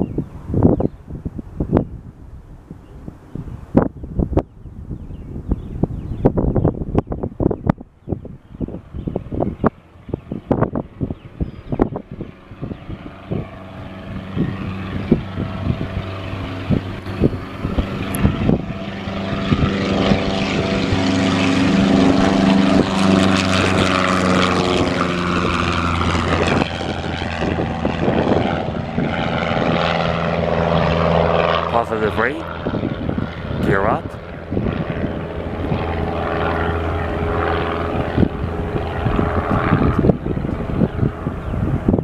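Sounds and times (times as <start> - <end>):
propeller plane engine drone: 0.0 - 42.0.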